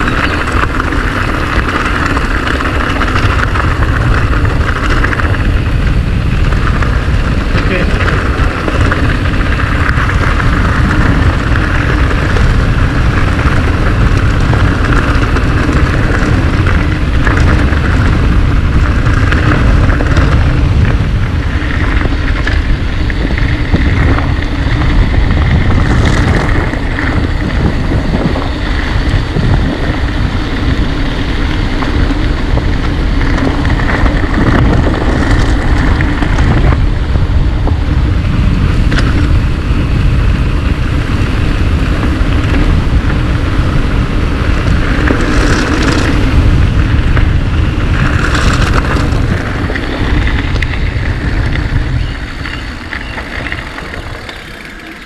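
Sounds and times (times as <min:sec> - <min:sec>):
bike knocking and rattling: 0:00.0 - 0:55.0
wind rushing over microphone: 0:00.0 - 0:55.0
tyres rolling: 0:41.8 - 0:55.0.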